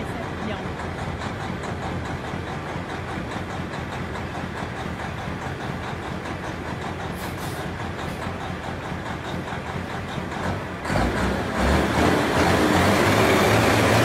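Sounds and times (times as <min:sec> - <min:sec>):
diesel truck engine revving: 0:00.0 - 0:14.0.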